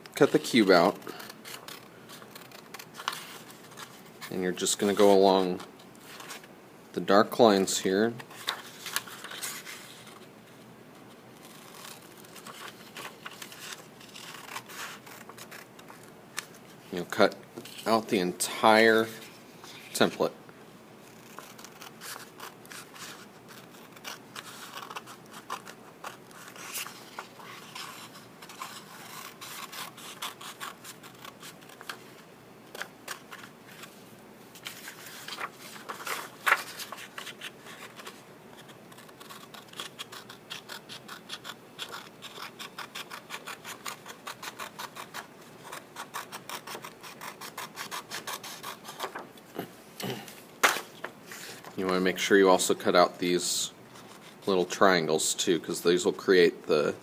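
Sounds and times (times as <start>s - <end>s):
paper rustling: 0.2s - 5.0s, 8.2s - 10.3s, 11.4s - 16.8s, 21.1s - 52.3s
scissors snipping paper: 35.4s - 49.2s.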